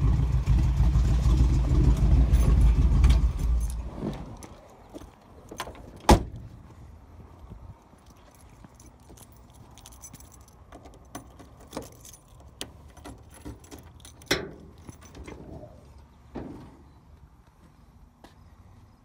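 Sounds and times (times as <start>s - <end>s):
keys jangling: 2.3s - 5.8s, 7.8s - 15.7s.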